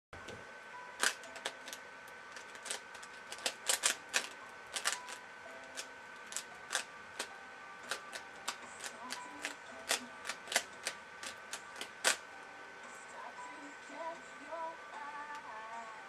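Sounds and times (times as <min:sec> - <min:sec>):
puzzle cube clicking: 0:01.0 - 0:01.8, 0:02.4 - 0:07.3, 0:07.9 - 0:12.2.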